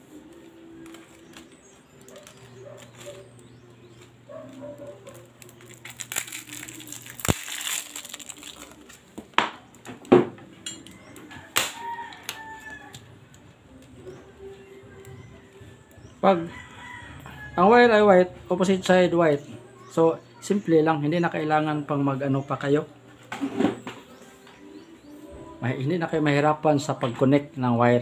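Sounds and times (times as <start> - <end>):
tape peeling off roll: 0.8 - 9.0.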